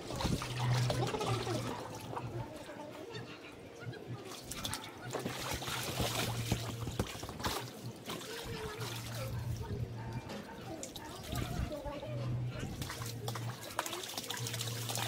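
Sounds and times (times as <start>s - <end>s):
water splashing in a pool: 0.0s - 3.0s, 4.0s - 15.0s
small children's voices: 0.2s - 5.6s, 7.9s - 14.8s.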